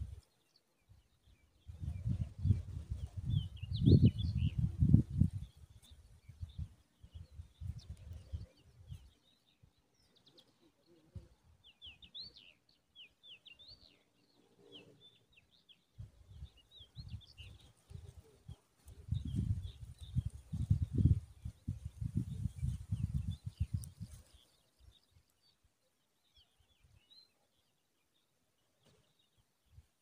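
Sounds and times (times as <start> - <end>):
small birds chirping: 0.0 - 30.0
low rumbling microphone noise: 19.0 - 24.1.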